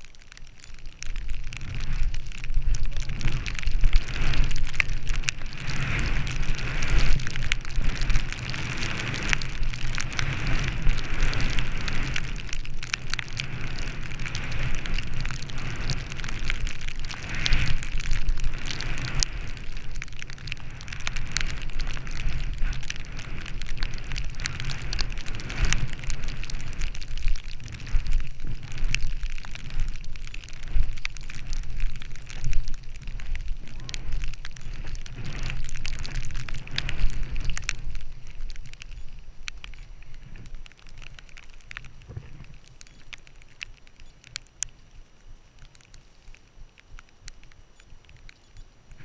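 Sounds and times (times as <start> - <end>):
skis swishing through snow: 1.6 - 12.7.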